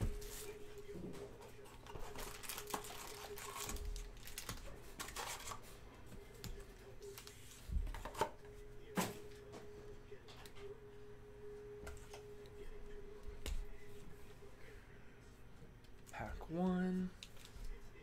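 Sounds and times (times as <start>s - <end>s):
foil card packs rustling: 1.7s - 5.7s.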